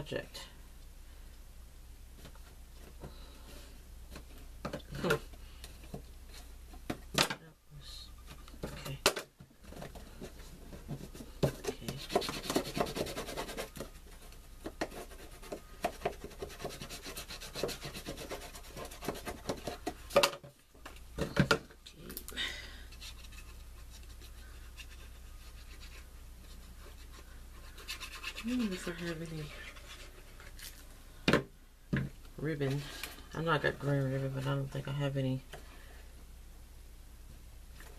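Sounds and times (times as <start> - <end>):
cardstock rubbing and scraping: 9.7 - 20.2, 22.9 - 30.6.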